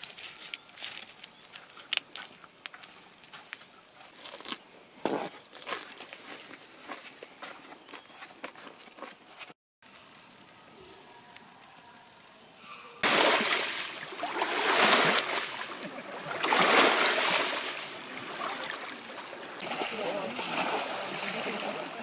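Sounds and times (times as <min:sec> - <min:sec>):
waves washing onto pebbly shore: 0:13.0 - 0:22.0.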